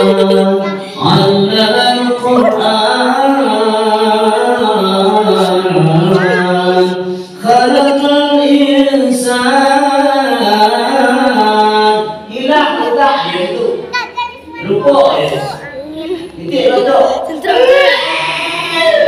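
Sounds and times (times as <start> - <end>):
man chanting into a microphone: 0.0 - 13.9.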